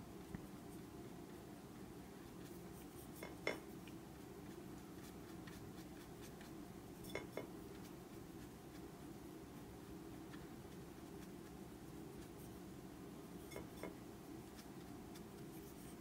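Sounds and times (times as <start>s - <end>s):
paintbrush clinking on ceramic plate: 3.2s - 3.7s, 7.0s - 7.5s, 13.4s - 14.0s.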